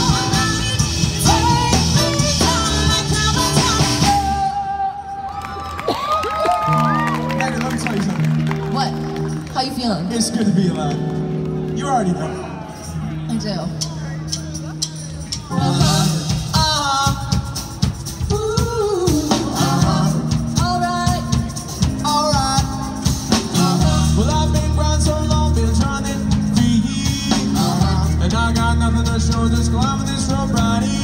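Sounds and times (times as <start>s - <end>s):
live band playing: 0.0s - 31.0s
person singing: 15.3s - 31.0s.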